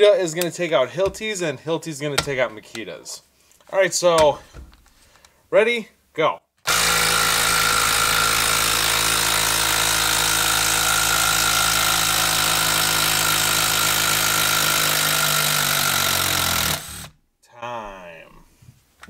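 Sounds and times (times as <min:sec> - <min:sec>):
impact driver hammering: 0:06.7 - 0:17.2.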